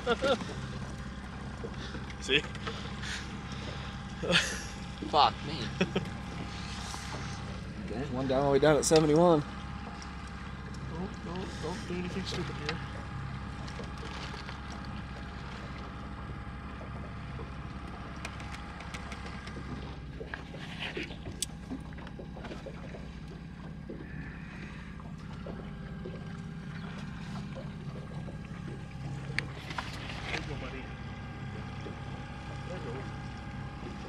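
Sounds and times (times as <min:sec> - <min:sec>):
boat motor droning: 0:00.0 - 0:34.0
faint clicks and knocks: 0:16.7 - 0:20.5.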